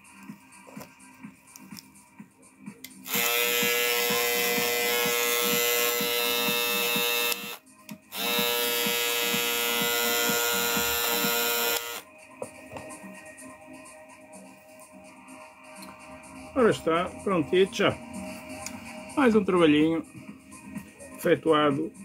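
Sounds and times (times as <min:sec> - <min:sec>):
electric shaver running: 0:03.0 - 0:12.0.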